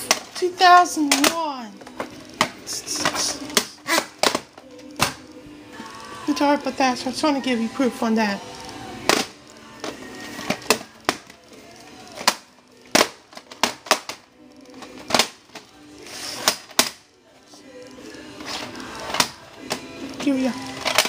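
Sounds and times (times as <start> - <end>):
plastic tape cases clicking: 1.0 - 5.4, 9.0 - 17.1, 18.4 - 21.0.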